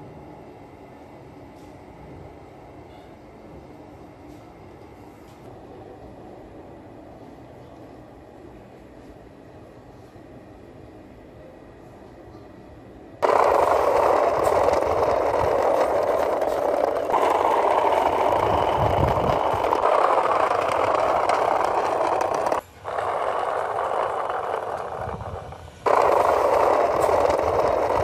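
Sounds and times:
model car wheels rattling on asphalt: 0:13.2 - 0:28.0.

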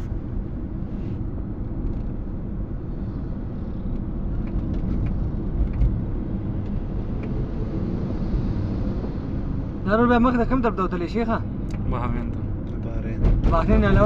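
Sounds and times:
road and tyre noise in car cabin: 0:00.0 - 0:14.0.

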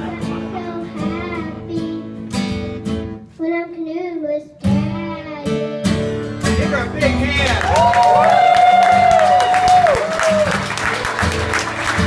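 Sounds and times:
strummed acoustic guitar: 0:00.0 - 0:03.4, 0:04.6 - 0:07.6, 0:10.5 - 0:12.0
girl singing folk song: 0:00.0 - 0:06.3.

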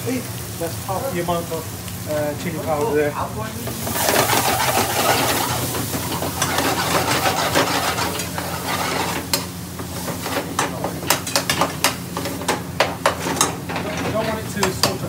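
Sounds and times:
curry sauce sizzling: 0:00.0 - 0:13.7
metal spoons scraping frying pans: 0:03.7 - 0:15.0.

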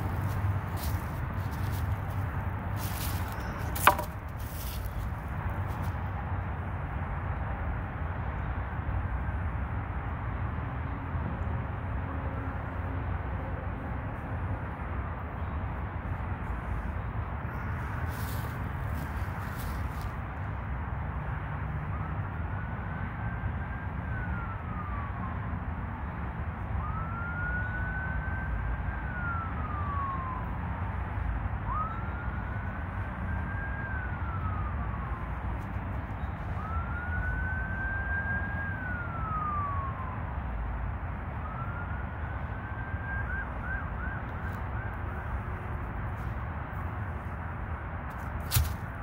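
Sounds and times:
emergency siren wailing: 0:21.5 - 0:47.0.

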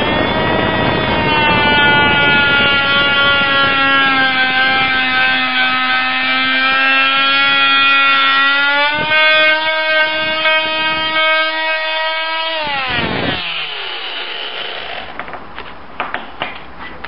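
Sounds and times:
multi-tool sawing wood: 0:00.0 - 0:15.2.

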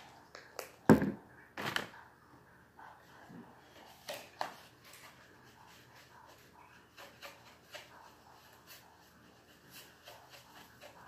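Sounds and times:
paintbrush stirring paint on plate: 0:02.8 - 0:11.0.

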